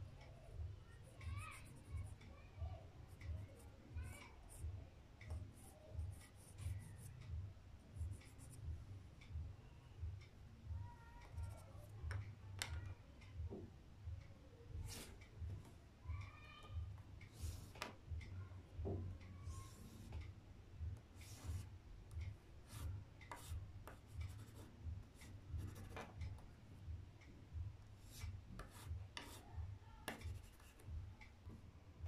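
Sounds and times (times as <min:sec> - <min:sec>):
pastel scratching on paper: 0:30.1 - 0:30.8.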